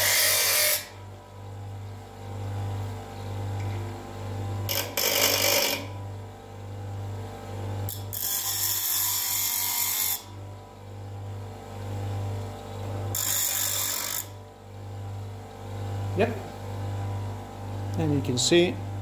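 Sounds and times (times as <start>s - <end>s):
screwdriver rasping on grinding wheel: 0.0s - 1.0s, 4.7s - 6.0s, 7.9s - 10.3s, 13.1s - 14.4s
bench grinder motor humming: 0.0s - 2.6s, 3.5s - 18.2s.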